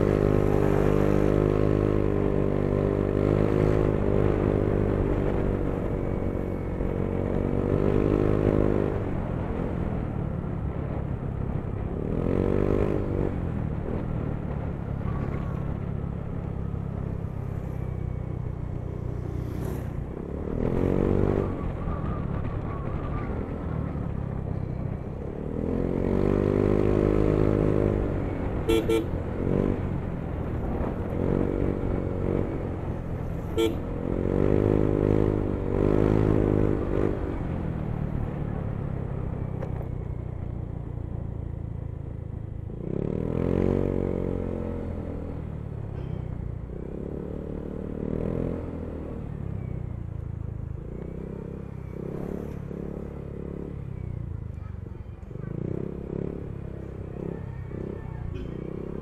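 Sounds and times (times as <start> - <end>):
scooter horn toots: 28.7 - 29.2, 33.5 - 33.9.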